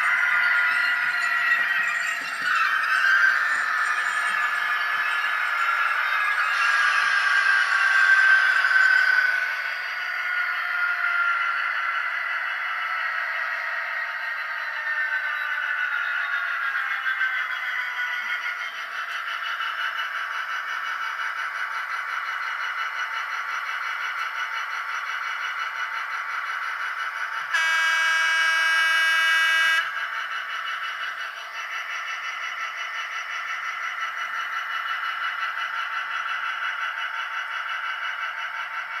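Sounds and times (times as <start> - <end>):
model diesel engine sound on speaker: 4.4 - 39.0
model train horn: 27.6 - 30.0.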